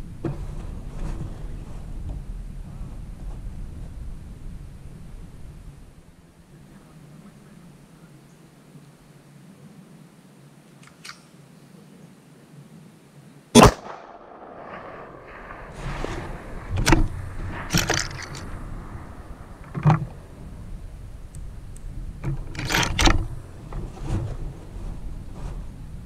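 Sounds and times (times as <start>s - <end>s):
metallic clicks of rifle bolt: 10.8s - 11.3s, 16.8s - 19.0s
rifle shot: 13.6s - 21.2s.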